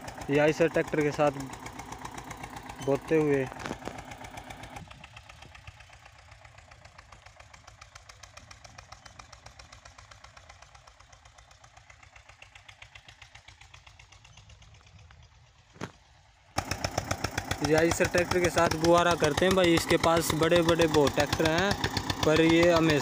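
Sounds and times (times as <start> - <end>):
tractor diesel engine chugging: 0.0 - 23.0.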